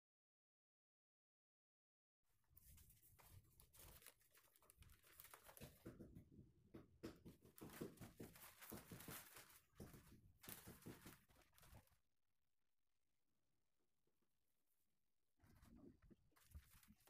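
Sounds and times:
tracing paper rustling and crinkling: 2.5 - 6.2, 7.2 - 12.0, 15.4 - 17.0.

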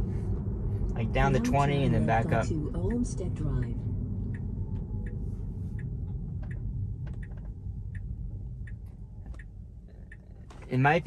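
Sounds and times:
low road rumble: 0.0 - 11.0
turn signal clicking: 4.2 - 11.0.

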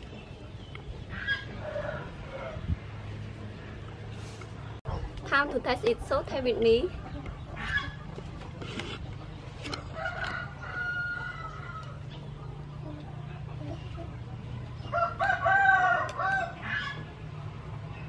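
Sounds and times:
rooster crowing: 9.8 - 12.0, 14.9 - 17.0.

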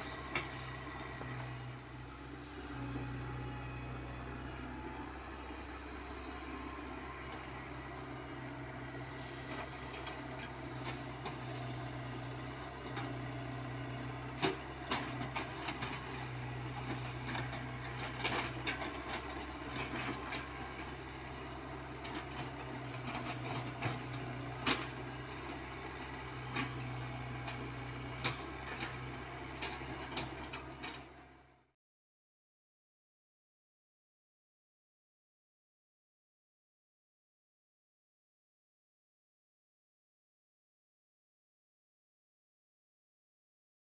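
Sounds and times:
excavator diesel engine running: 0.0 - 31.7.

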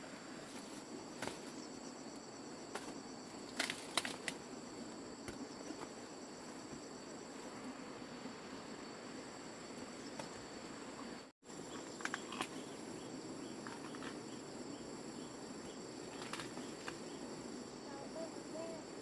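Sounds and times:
insects chirring: 0.0 - 19.0
corn ears snapping off stalks: 2.7 - 4.4, 15.6 - 17.0.

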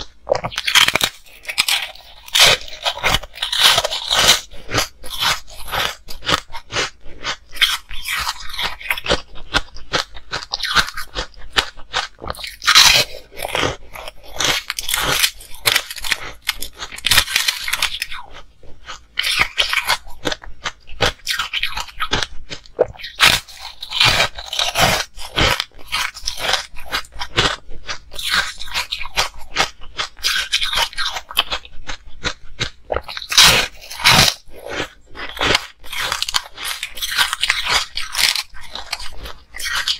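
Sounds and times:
frozen ice discs crunching: 0.0 - 39.9.

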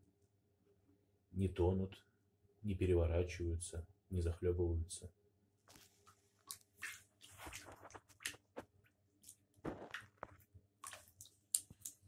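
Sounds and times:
lizard splashing in water: 6.4 - 8.6, 10.8 - 12.0.

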